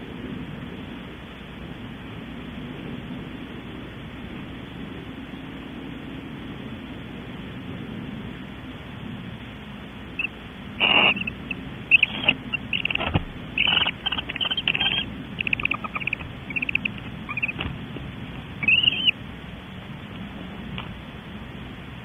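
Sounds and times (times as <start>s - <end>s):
steady hiss: 0.0s - 22.0s
owls chittering calls: 10.2s - 19.2s.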